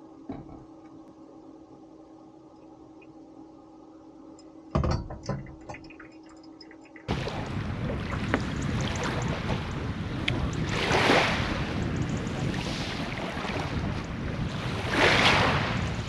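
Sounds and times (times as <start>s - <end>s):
steady hum: 0.0s - 16.0s
waves washing on pebble shore: 7.1s - 16.0s
wind on microphone: 7.1s - 16.0s.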